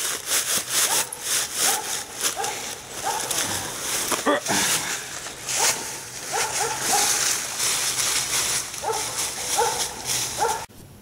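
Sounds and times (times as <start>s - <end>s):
footsteps through dry leaves: 0.0s - 10.7s
dog barking: 0.9s - 3.4s, 5.5s - 7.3s, 8.8s - 10.7s.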